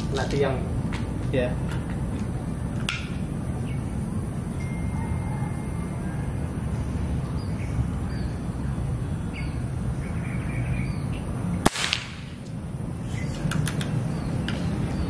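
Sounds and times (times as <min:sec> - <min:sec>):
small birds chirping: 0:00.0 - 0:05.2, 0:06.7 - 0:11.6, 0:12.9 - 0:15.0
steady low rumble: 0:00.0 - 0:15.0
air rifle shot: 0:11.6 - 0:12.4.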